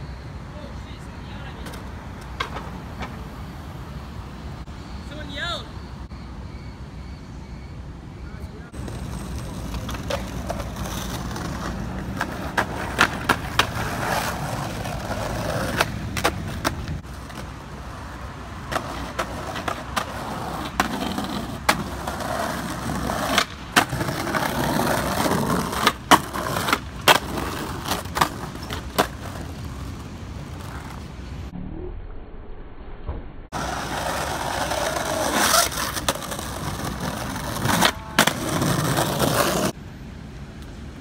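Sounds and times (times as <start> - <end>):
skateboard wheels rolling on stone: 1.5 - 3.5, 8.7 - 31.5, 33.5 - 39.8
skateboard wooden clacks: 1.6 - 3.2.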